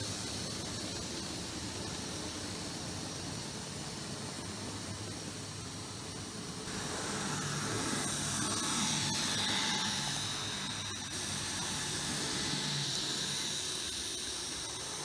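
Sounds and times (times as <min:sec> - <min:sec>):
steady hiss: 0:00.0 - 0:15.0
model train motor whine: 0:06.7 - 0:15.0.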